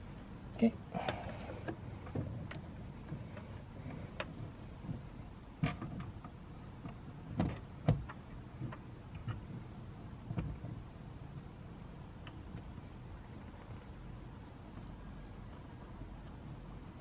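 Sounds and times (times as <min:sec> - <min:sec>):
plastic clicks and knocks: 0:04.2 - 0:09.6, 0:10.3 - 0:10.8.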